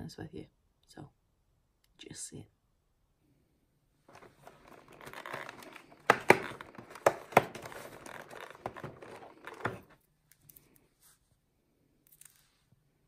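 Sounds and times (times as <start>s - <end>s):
cardboard tearing and rustling: 4.1s - 10.0s
foil wrapper crinkling: 4.5s - 9.8s
cardboard snapping: 5.0s - 10.0s.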